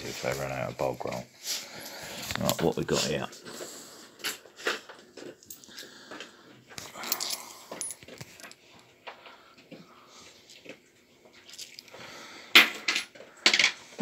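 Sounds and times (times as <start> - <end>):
coins clinking in a hand: 6.9 - 8.6.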